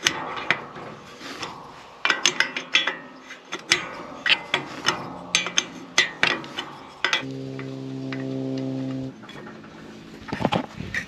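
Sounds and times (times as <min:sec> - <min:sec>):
metal scraping: 0:03.2 - 0:11.0.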